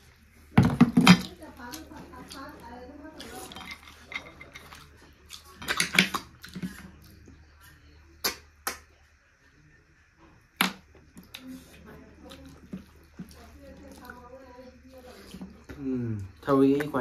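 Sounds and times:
dishes and cutlery clinking: 0:03.2 - 0:06.8.

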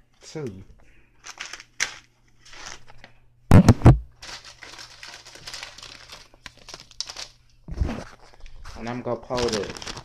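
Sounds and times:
plastic wrapper crinkling: 0:01.2 - 0:03.1, 0:04.1 - 0:10.0.

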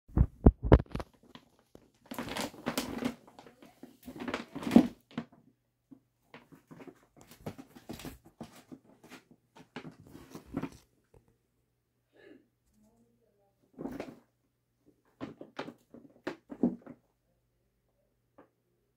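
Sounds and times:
plastic bag rustling and crinkling: 0:00.2 - 0:05.3, 0:06.3 - 0:10.8.

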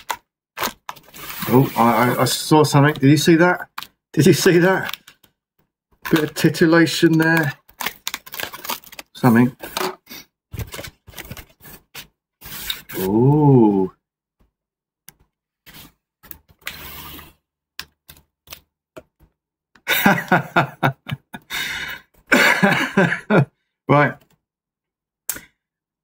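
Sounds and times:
plastic packing crinkling and tearing: 0:00.0 - 0:05.2, 0:06.0 - 0:13.0
person saying ooh: 0:13.0 - 0:14.0.

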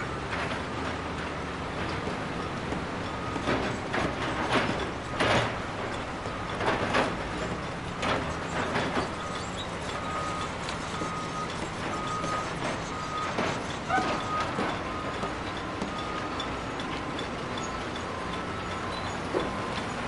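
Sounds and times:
low rumble of machinery: 0:00.0 - 0:20.0
reversing alarm beeping: 0:07.4 - 0:20.0.

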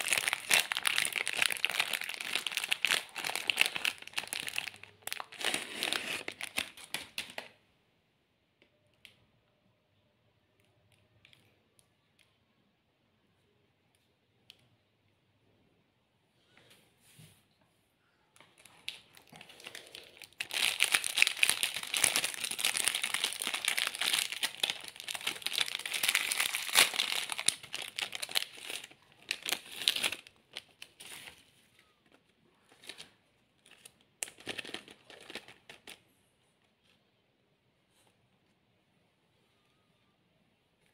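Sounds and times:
snack wrapper crinkling and tearing: 0:00.0 - 0:07.5, 0:18.6 - 0:31.4, 0:32.7 - 0:36.0.

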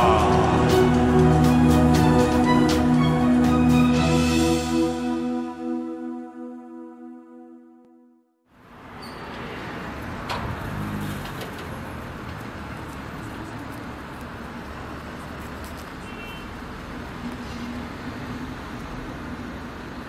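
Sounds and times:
distant traffic: 0:08.5 - 0:20.0.

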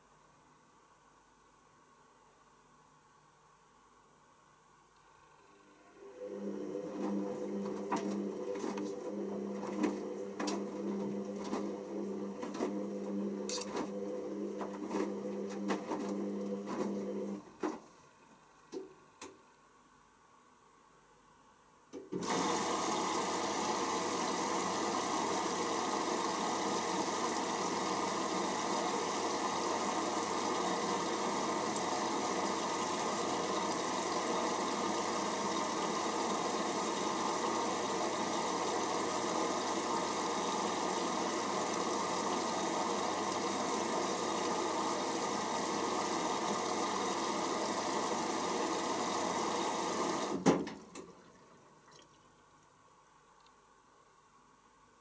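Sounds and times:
water rushing into machine: 0:22.2 - 0:52.0.

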